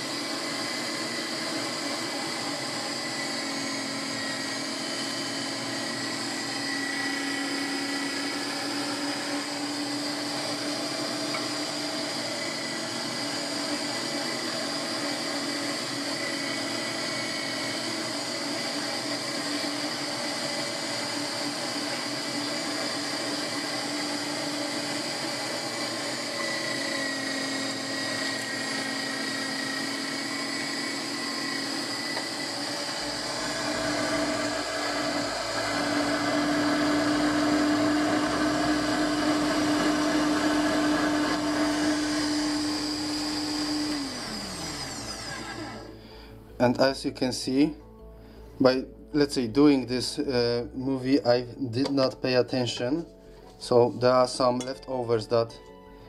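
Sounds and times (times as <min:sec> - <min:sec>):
electric mincer motor humming with whine: 0:00.0 - 0:46.2.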